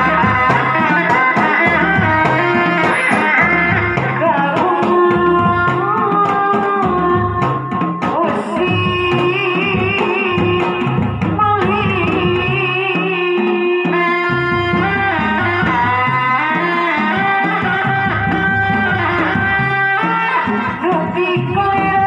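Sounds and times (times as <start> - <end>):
large drums beating: 0.0 - 13.0.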